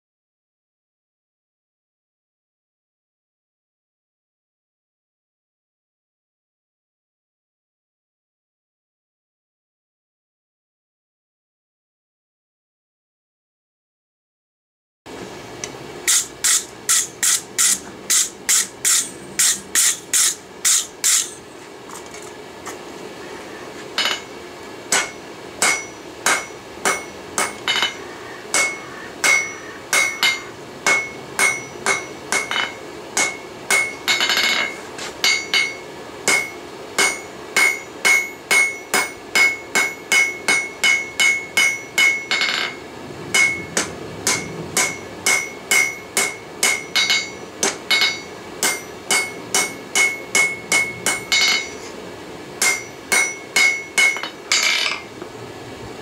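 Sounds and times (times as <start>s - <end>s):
hammer blows ringing on anvil: 16.1s - 21.4s, 24.0s - 51.9s, 52.6s - 55.1s.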